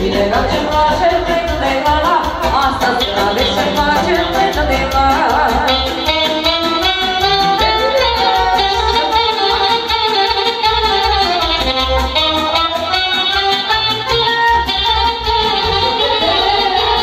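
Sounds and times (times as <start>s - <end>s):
woman singing into microphone: 0.0s - 9.7s, 15.5s - 17.0s
electronic keyboard: 0.0s - 17.0s
saxophone: 0.0s - 17.0s.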